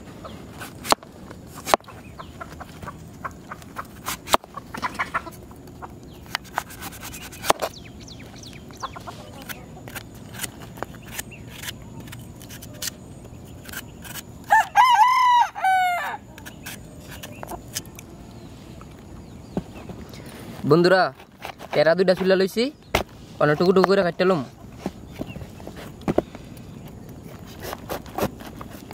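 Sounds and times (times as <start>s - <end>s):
chickens clucking: 0.0s - 14.0s, 15.6s - 20.5s, 23.4s - 27.1s
rooster crowing: 14.5s - 16.3s.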